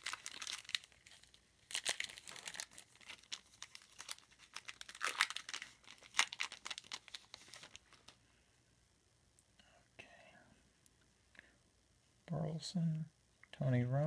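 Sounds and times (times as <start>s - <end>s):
card pack wrapper crinkling and tearing: 0.0s - 8.2s.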